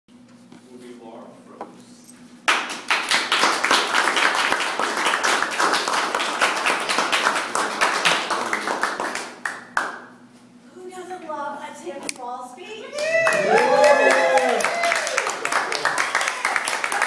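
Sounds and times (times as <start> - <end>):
person clapping close: 2.5 - 10.1
small audience applauding: 2.5 - 10.1, 12.9 - 17.0.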